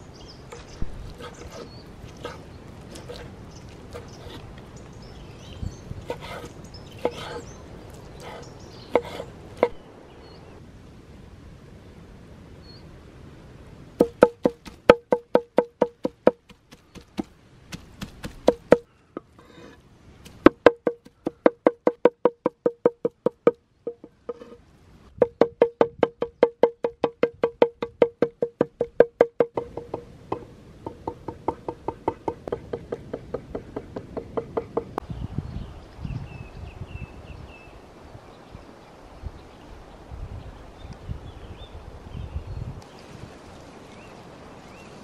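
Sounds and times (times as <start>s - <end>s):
small birds chirping: 0.0s - 10.6s, 16.5s - 19.1s
knife chopping on wooden board: 1.2s - 3.3s, 6.0s - 7.4s, 8.2s - 9.8s, 14.0s - 18.8s
knife cutting meat on board: 1.2s - 3.3s, 6.1s - 7.4s
knife knocking wooden board: 9.0s - 9.8s, 18.0s - 18.8s.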